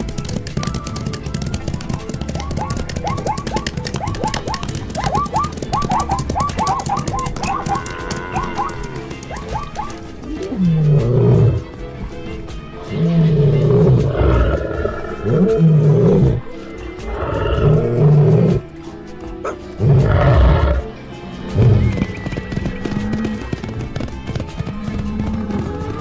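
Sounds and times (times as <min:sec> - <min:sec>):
background music: 0:00.0 - 0:26.0
large animals roaring: 0:13.0 - 0:16.4, 0:17.1 - 0:18.6, 0:19.8 - 0:20.9.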